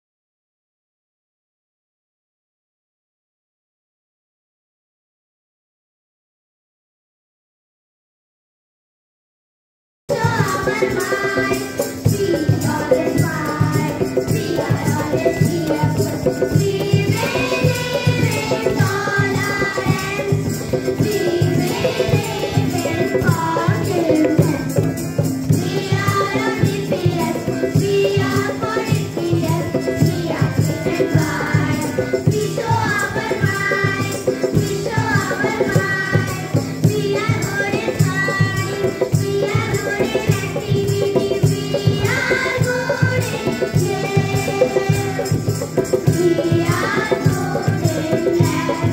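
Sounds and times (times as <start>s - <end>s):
children singing in chorus: 10.1s - 48.9s
jingling tambourine percussion: 10.1s - 48.9s
rhythmic beat: 10.1s - 48.9s.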